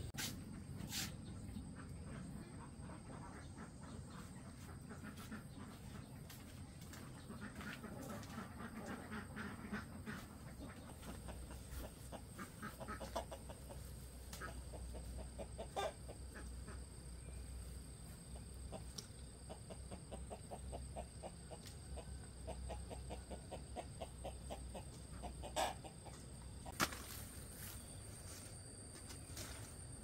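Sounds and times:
chickens clucking: 0.0s - 29.9s.

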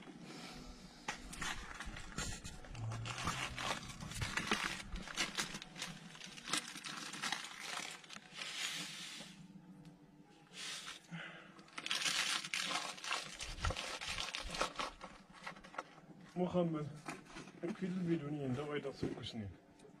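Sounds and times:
cloth or plastic rustling: 1.2s - 9.3s, 11.7s - 15.9s.

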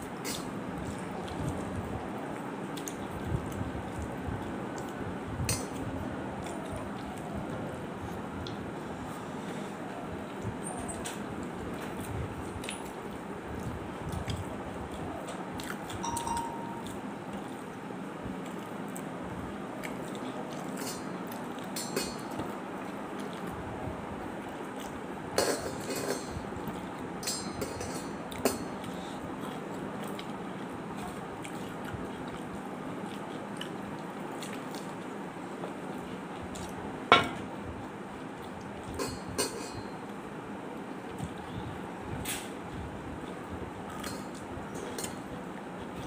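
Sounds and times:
fingers and bangles clinking on plate: 16.0s - 17.0s, 27.2s - 28.8s.

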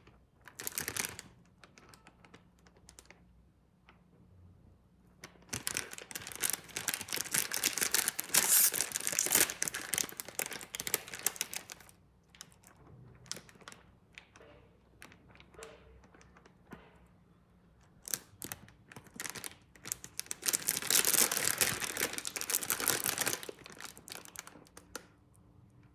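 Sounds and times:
plastic packet crinkling: 0.0s - 3.3s, 5.2s - 14.3s, 18.0s - 25.2s.

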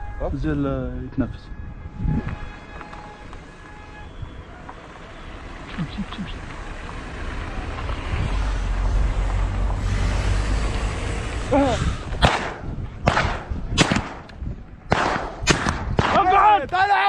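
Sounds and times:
wind on microphone: 0.0s - 4.6s, 7.6s - 16.8s
vehicle rumble: 0.0s - 14.9s
shotgun shots: 12.2s - 14.3s, 14.9s - 16.3s.

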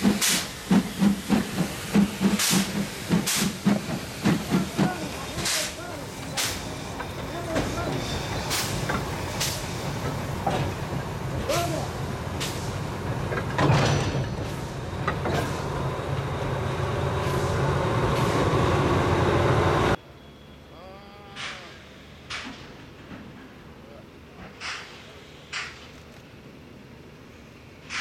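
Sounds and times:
diesel locomotive engine throbbing: 0.0s - 20.0s.

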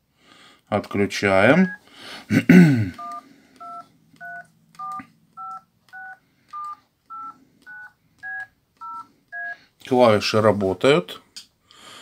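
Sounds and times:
two-tone phone keypad beeps: 3.0s - 9.6s.

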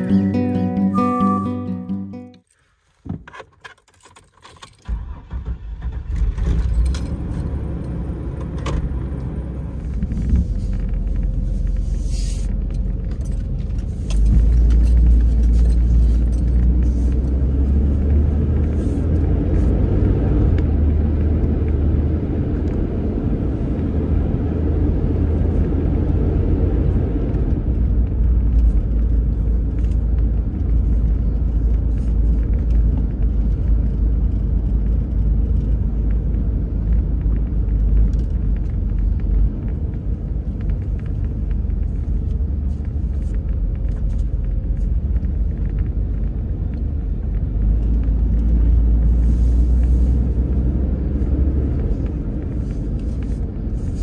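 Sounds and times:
van engine rumbling while driving: 0.0s - 1.4s, 4.1s - 54.0s
van engine starting: 4.0s - 17.4s.

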